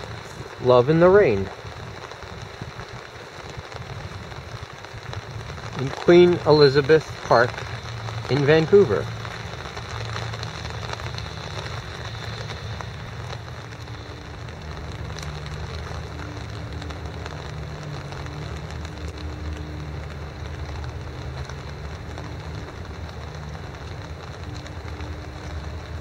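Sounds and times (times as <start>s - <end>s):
drops ticking on wet surfaces: 0.0s - 26.0s
low steady rumble: 0.0s - 26.0s
rain falling: 0.0s - 26.0s.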